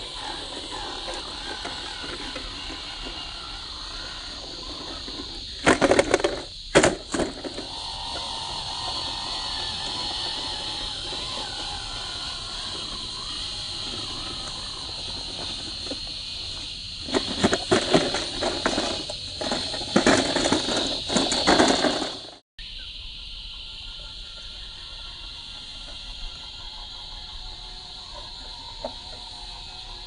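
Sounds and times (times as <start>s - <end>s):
toy car tyres crunching over rock: 0.0s - 22.4s
high insect drone: 0.0s - 30.0s.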